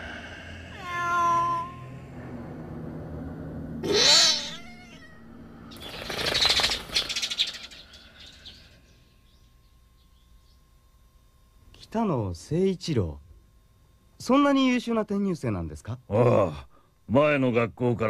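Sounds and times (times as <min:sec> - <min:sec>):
cat meowing: 0:00.7 - 0:01.9, 0:03.8 - 0:05.2
cat yowling: 0:00.7 - 0:01.9, 0:03.8 - 0:05.3.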